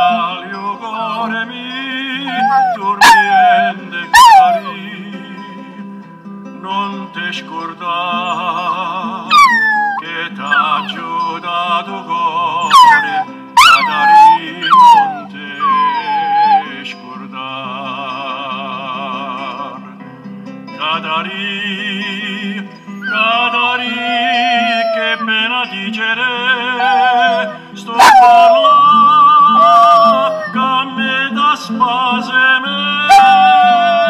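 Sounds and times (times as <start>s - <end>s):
recorded song with singer: 0.0s - 34.0s
puppy howling: 2.2s - 4.8s, 8.3s - 11.1s, 12.6s - 16.8s, 23.0s - 25.5s, 26.6s - 30.7s, 33.0s - 34.0s.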